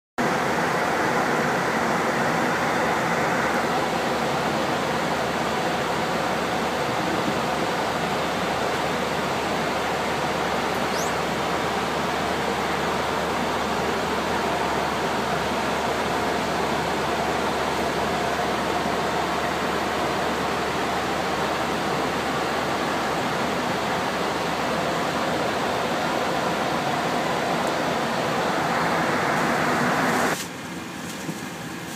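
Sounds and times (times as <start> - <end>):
cockpit air rush and equipment noise: 26.8 - 31.9.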